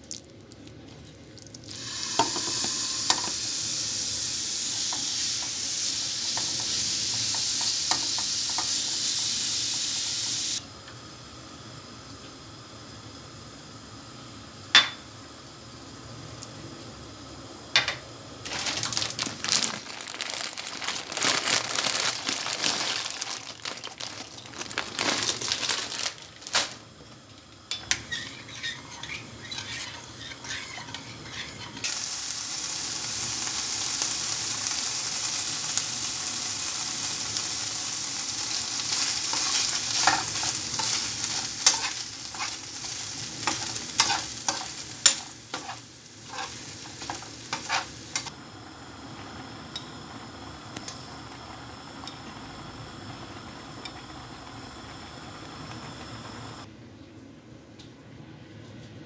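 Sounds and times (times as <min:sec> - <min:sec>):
chicken sizzling in a pan: 0:01.6 - 0:15.6, 0:17.7 - 0:56.7
spoon scraping a pan: 0:27.7 - 0:31.9, 0:39.3 - 0:48.3
spoon scraping a steel pot: 0:27.7 - 0:31.9.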